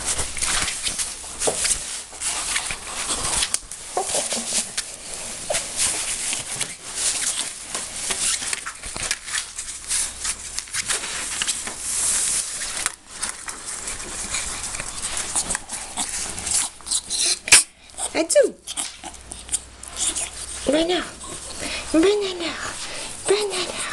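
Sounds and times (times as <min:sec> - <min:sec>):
fabric scuffling and rustling: 0:00.0 - 0:16.5.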